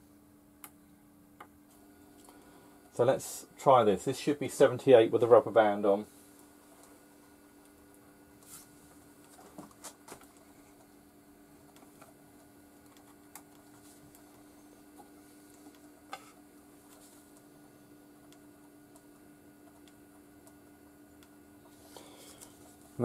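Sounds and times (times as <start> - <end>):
faint steady hum: 0.0 - 23.0
record clicks on turntable: 11.7 - 14.2, 18.2 - 21.4.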